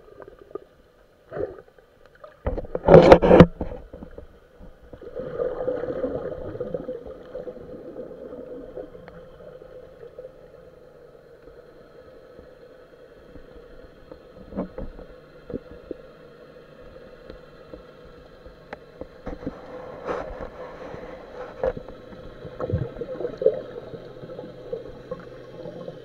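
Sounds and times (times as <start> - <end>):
underwater water rushing: 0.0 - 26.0.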